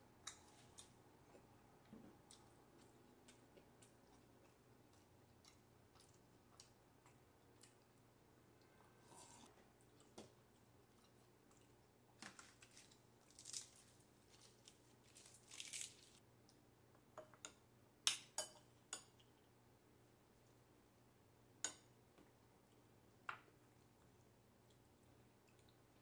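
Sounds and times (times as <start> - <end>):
lettuce leaf rustling and crackling: 12.2 - 16.2.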